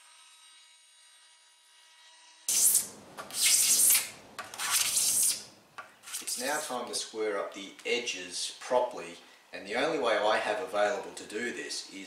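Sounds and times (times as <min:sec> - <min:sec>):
scraper scraping wood: 0:02.5 - 0:06.7.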